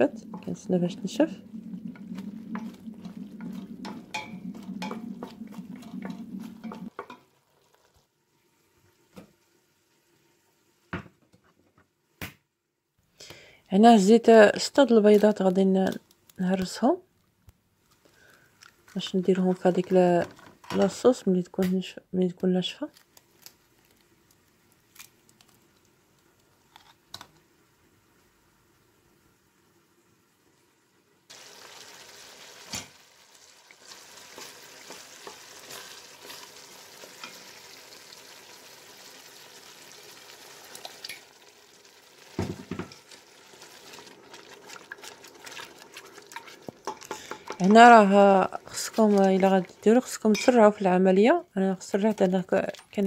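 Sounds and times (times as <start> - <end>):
sauce sizzling: 0.0 - 10.9, 31.3 - 53.0
spatula scraping a pot: 1.5 - 7.2, 44.3 - 48.0.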